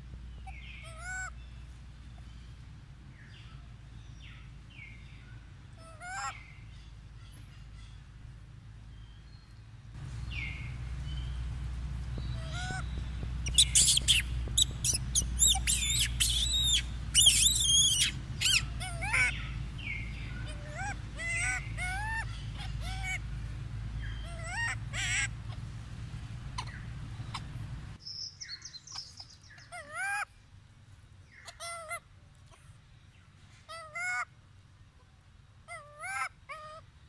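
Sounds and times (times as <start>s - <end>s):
low rumble: 0.0s - 28.0s
monkeys squealing and cooing: 5.8s - 6.4s, 12.3s - 23.4s, 24.0s - 25.7s, 26.5s - 27.6s, 28.9s - 30.3s, 35.7s - 36.8s.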